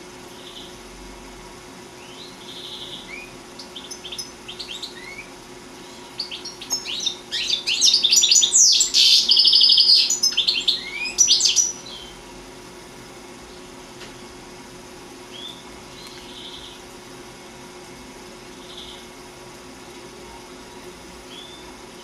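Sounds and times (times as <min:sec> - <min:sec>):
goldfinch singing: 0:02.0 - 0:12.2.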